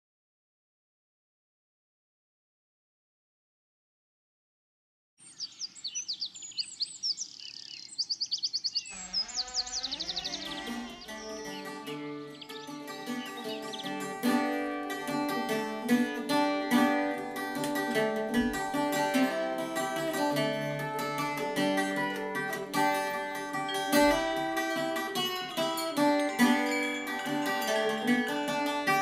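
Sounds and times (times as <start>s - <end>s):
plucked string melody: 10.2s - 29.0s.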